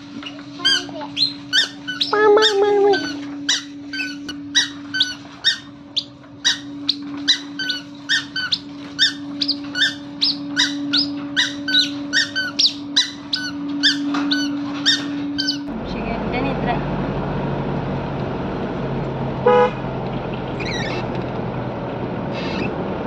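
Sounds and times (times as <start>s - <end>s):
squeaky sandals squeaking: 0.0s - 15.7s, 20.6s - 21.1s
steady low hum: 0.0s - 23.0s.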